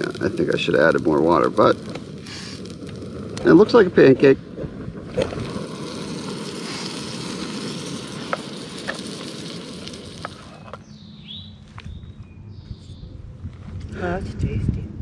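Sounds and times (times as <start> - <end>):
pancakes sizzling in a pan: 5.2 - 10.7.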